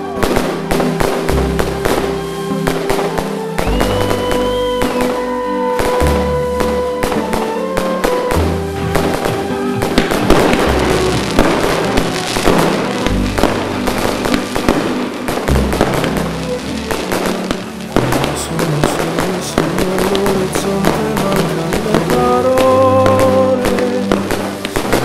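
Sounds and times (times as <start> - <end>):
fireworks bangs: 0.0 - 25.0
music with low bass: 3.6 - 7.4, 8.3 - 23.6.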